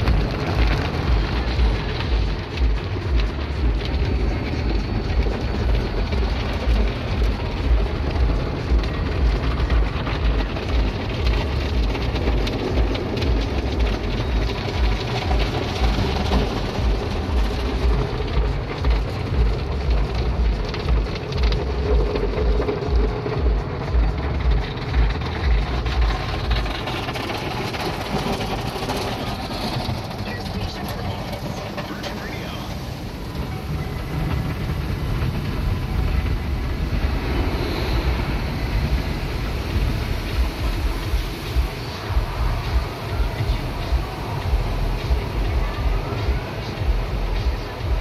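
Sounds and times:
water spraying: 0:00.0 - 0:48.0.

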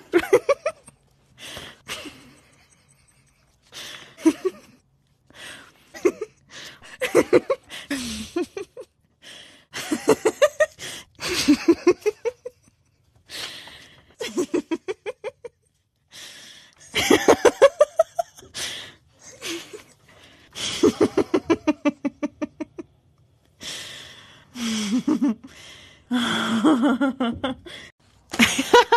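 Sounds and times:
person laughing hard: 0:20.6 - 0:22.8, 0:26.2 - 0:28.9.

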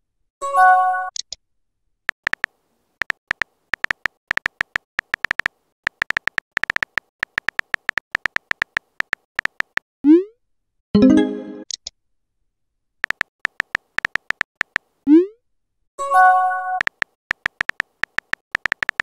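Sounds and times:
phone keyboard clicks: 0:02.1 - 0:09.8, 0:13.0 - 0:14.9, 0:16.8 - 0:19.0.

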